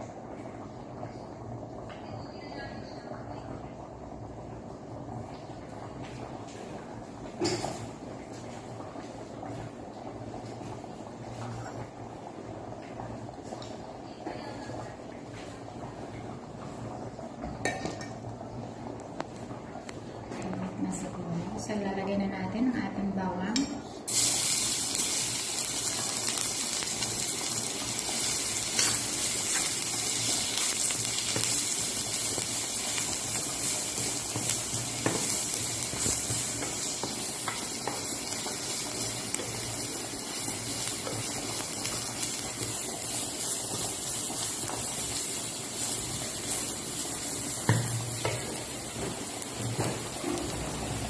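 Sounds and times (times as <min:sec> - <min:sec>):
garlic sizzling in hot oil: 0:24.1 - 0:51.0.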